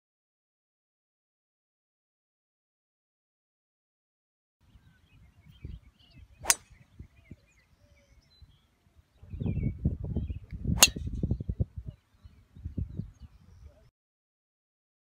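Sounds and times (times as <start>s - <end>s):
golf club striking ball: 6.4s - 6.8s, 10.8s - 11.3s.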